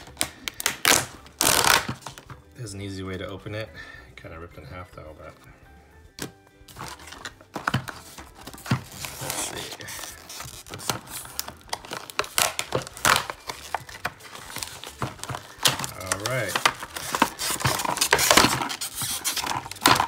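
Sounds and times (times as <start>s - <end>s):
plastic packaging crinkling: 0.0s - 2.4s, 6.7s - 20.0s.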